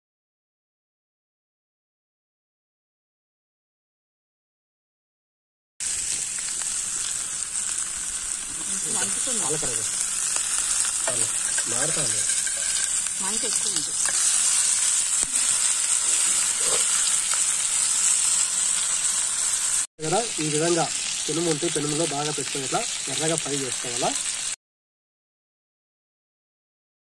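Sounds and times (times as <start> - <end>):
chicken sizzling in oil: 5.8 - 24.6.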